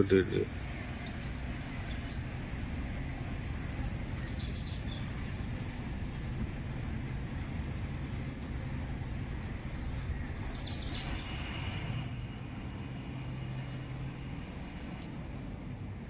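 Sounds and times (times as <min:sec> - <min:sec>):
bird chirping: 0:00.0 - 0:02.4, 0:03.3 - 0:08.6, 0:09.8 - 0:11.7
engine idling hum: 0:00.0 - 0:16.0
outdoor rumble: 0:00.0 - 0:16.0.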